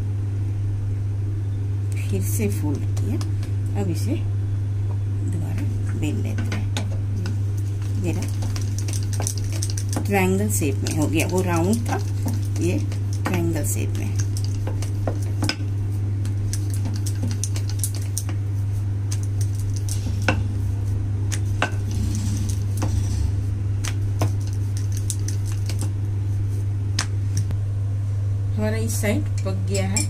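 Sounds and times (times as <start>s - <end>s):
steady low hum: 0.0s - 30.0s
rolling pin rolling dough: 6.0s - 26.6s.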